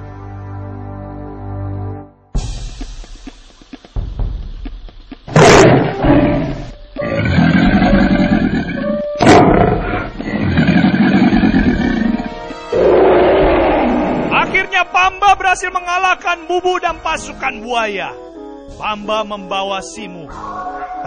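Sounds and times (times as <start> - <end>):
dramatic music: 0.1 - 21.0
lion roaring: 5.3 - 14.6.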